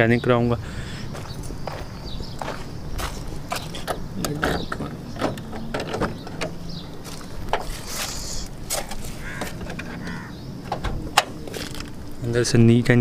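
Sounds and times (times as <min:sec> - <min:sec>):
footsteps: 0:01.0 - 0:04.0, 0:07.0 - 0:09.6
car door handle and latch clicking: 0:03.8 - 0:06.6, 0:08.8 - 0:11.9.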